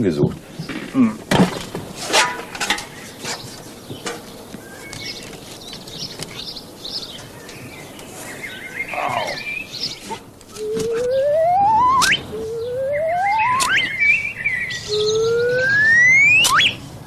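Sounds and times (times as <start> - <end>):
songbirds chirping: 0.0 - 17.0
objects knocking and clattering: 0.6 - 4.4.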